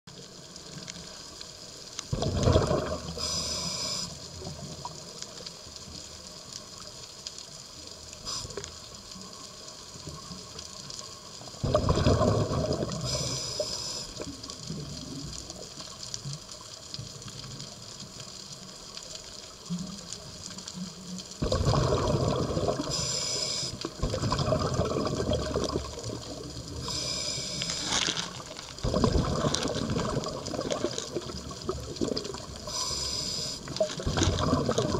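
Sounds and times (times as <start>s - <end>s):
faint underwater hiss: 0.1s - 34.9s
exhaled bubbles gushing: 2.1s - 3.4s, 11.6s - 15.7s, 21.4s - 23.2s, 23.8s - 32.9s, 33.6s - 34.9s
regulator hiss: 3.0s - 4.7s, 8.0s - 9.6s, 12.9s - 14.6s, 22.7s - 24.1s, 26.6s - 28.6s, 32.4s - 34.0s.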